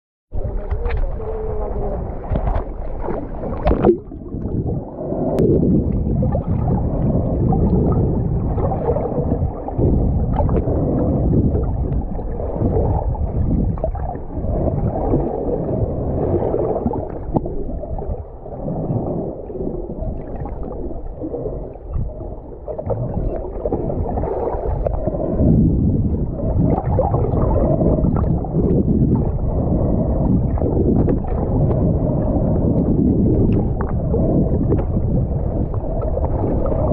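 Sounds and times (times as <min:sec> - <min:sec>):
muffled underwater rush and gurgle: 0:00.3 - 0:36.9.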